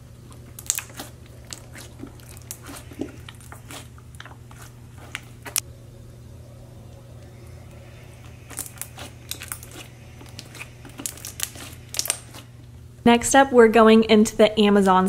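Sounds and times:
faint low hum: 0.0 - 15.0
slime squished by hand: 0.5 - 5.6, 8.4 - 12.5.

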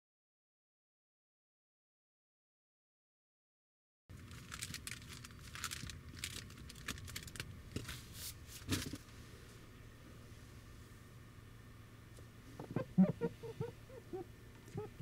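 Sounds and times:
rustling and crinkling: 4.1 - 9.6
steady low hum: 4.1 - 15.0.

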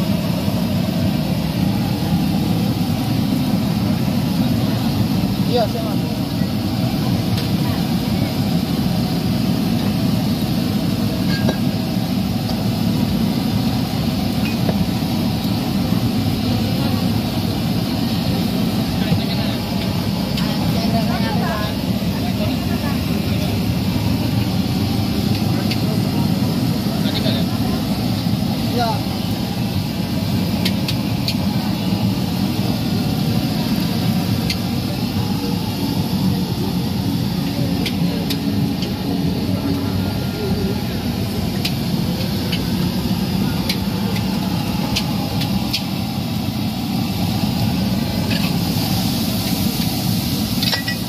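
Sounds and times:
gas burner roaring: 0.0 - 51.0
noodles sizzling in wok: 46.5 - 51.0.

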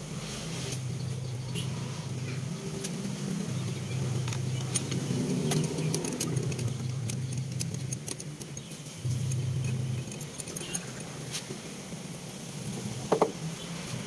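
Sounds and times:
low steady hum: 0.0 - 13.1
small metallic clicks and jingling: 3.8 - 11.2.

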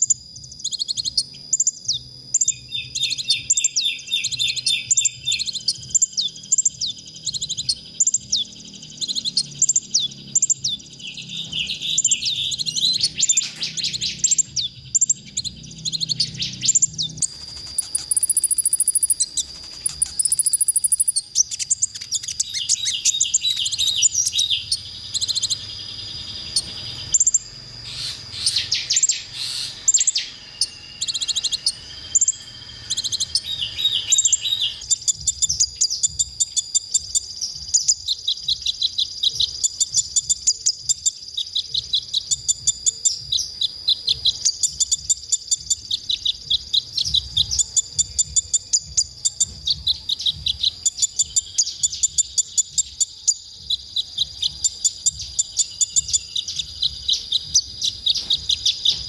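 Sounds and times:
sunbird twittering and trilling: 0.0 - 59.0.

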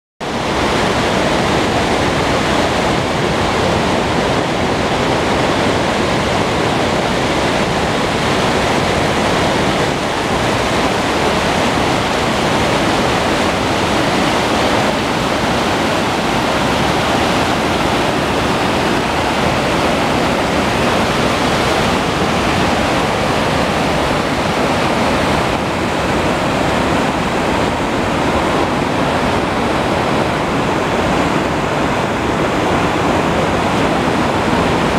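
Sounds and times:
river rushing over boulders: 0.2 - 34.9.

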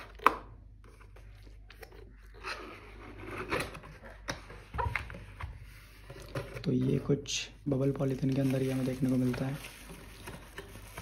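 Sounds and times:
cardboard rustling and scraping: 2.5 - 7.2, 8.0 - 11.0.

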